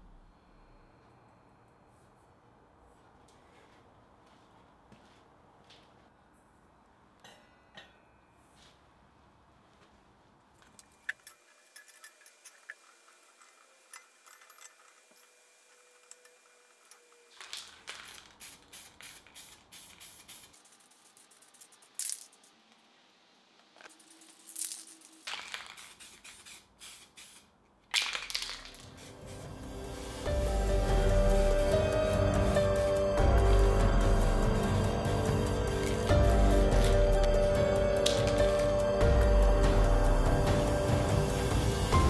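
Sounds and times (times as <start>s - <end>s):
spray can rattling and hissing: 17.3s - 22.6s, 23.9s - 30.3s.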